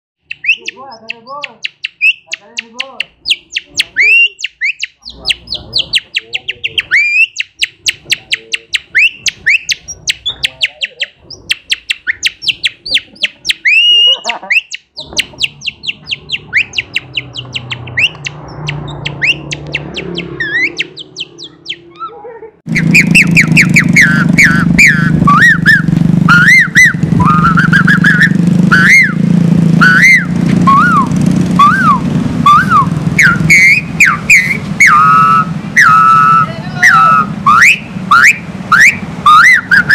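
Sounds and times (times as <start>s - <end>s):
man imitating bird chirps: 0.2s - 29.2s, 29.8s - 39.9s
man whistling through fingers: 0.3s - 21.9s, 22.8s - 29.2s, 29.8s - 39.9s
loud steady background noise: 22.7s - 39.9s.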